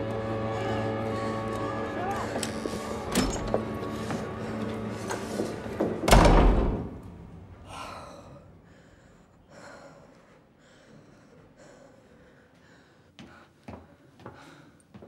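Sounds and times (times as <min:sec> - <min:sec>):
heavy door slamming: 0:02.3 - 0:03.7, 0:05.5 - 0:07.6.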